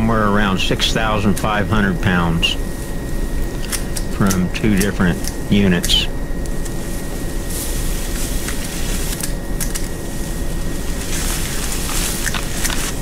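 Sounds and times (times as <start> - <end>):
hand pruners clicking: 3.6 - 6.6, 9.1 - 9.9
branches rustling: 6.7 - 9.3, 9.9 - 13.0.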